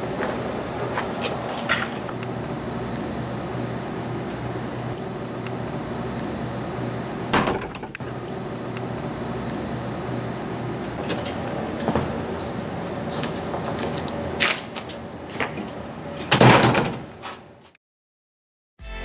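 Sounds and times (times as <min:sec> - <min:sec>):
steady low hum: 0:00.0 - 0:17.7
door shutting with thud: 0:07.3 - 0:08.0, 0:16.3 - 0:17.1.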